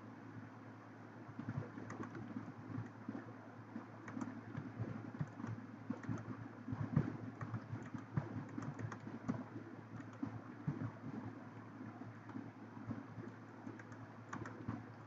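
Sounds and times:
low steady hum: 0.0s - 15.0s
keyboard typing: 1.4s - 3.0s, 4.0s - 11.0s, 12.2s - 15.0s.

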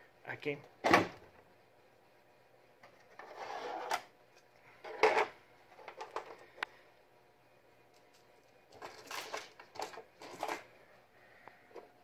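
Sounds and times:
plastic toy pieces scraping: 8.7s - 10.6s.

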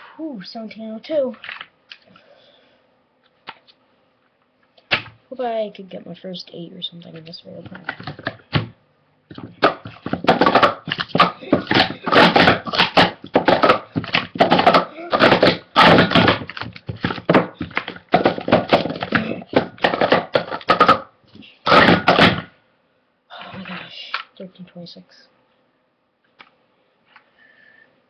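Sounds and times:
plastic cups clacking: 7.6s - 8.7s, 9.3s - 21.1s, 21.7s - 22.5s.

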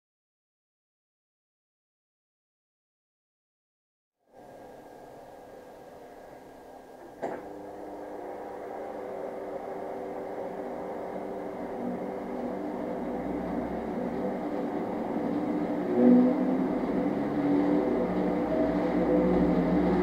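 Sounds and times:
tyre humming on spinning drum: 4.5s - 20.0s.

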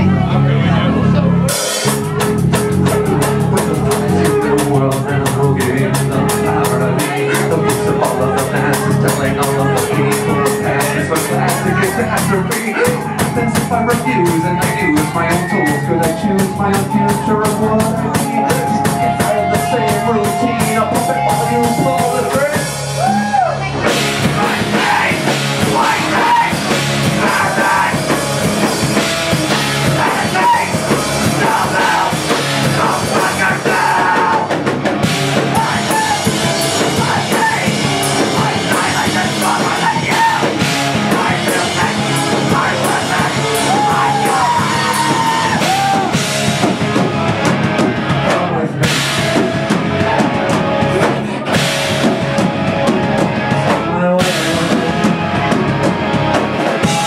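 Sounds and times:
rock band playing: 0.0s - 57.0s
lead singer singing: 3.2s - 23.4s, 24.1s - 46.3s, 53.5s - 55.3s.

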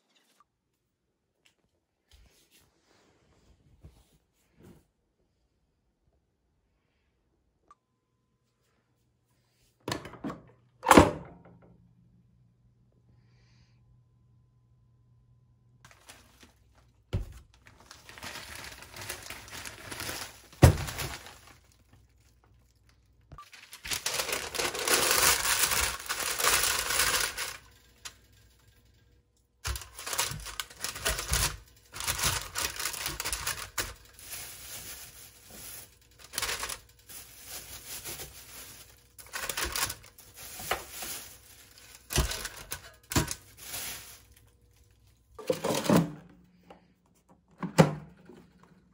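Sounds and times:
parchment paper crinkling and tearing: 15.9s - 28.3s, 29.6s - 45.2s.

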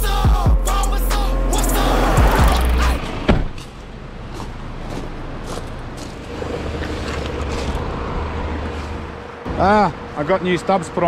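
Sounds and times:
background music: 0.0s - 3.4s
road noise: 0.0s - 11.0s
vehicle engine rumble: 0.0s - 11.0s.

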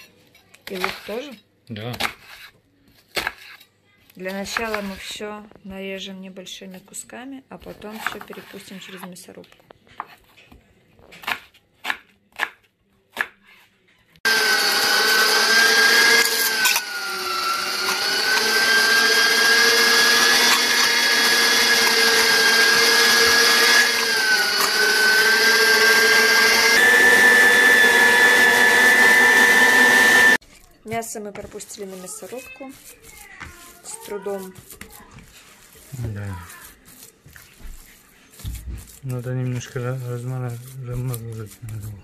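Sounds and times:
meat grinder motor whine: 14.3s - 30.4s.

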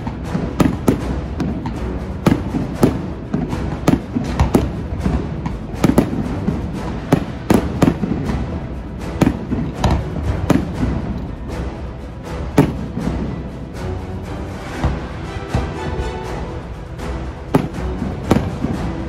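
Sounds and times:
fireworks bursting: 0.0s - 8.4s, 17.5s - 18.9s
background music: 0.0s - 19.0s.

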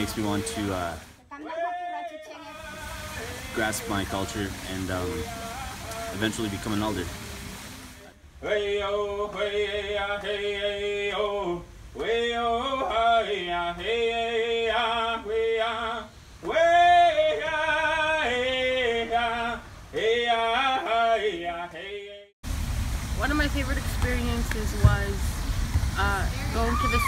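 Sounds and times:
person singing long notes: 1.3s - 7.3s.

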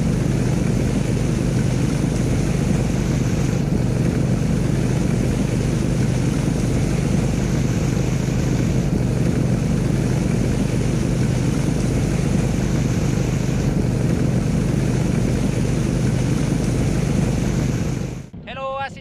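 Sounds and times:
motorbike engine running: 0.0s - 18.4s
water rushing: 0.1s - 18.3s.

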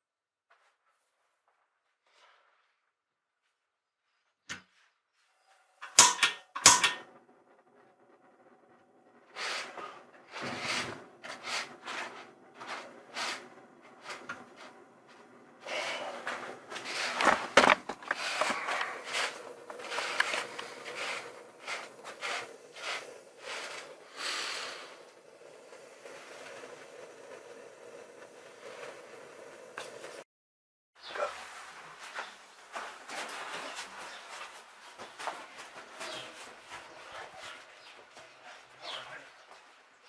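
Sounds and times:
gas burner roaring: 5.8s - 30.2s.

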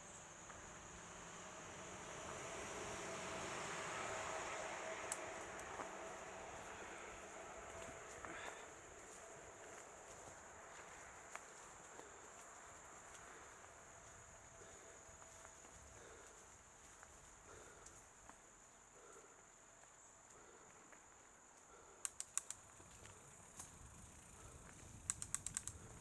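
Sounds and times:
insects chirring: 0.0s - 26.0s
sharp clicks: 22.0s - 22.6s, 25.0s - 25.9s.

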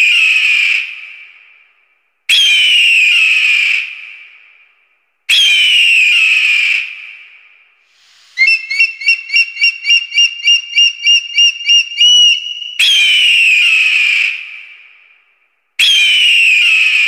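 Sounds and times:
high piping bird notes: 8.2s - 12.9s
bird of prey screaming: 8.3s - 14.4s.

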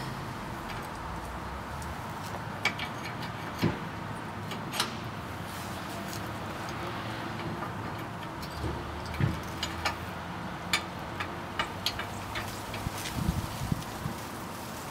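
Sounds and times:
metallic clicks and knocks: 1.8s - 5.0s, 6.6s - 13.0s.

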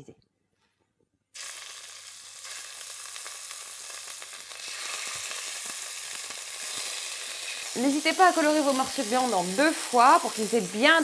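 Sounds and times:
meat sizzling in hot oil: 1.4s - 11.0s.

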